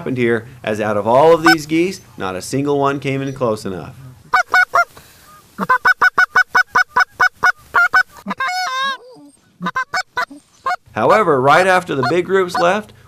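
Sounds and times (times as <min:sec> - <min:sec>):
goose call clucks: 0:01.4 - 0:01.7, 0:04.3 - 0:12.9.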